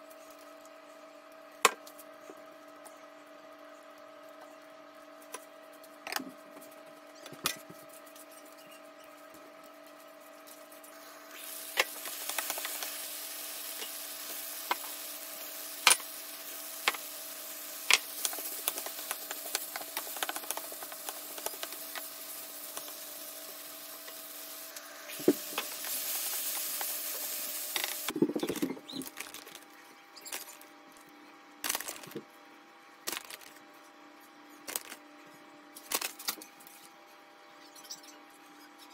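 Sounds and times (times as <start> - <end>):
food sizzling in a frying pan: 10.9 - 28.2.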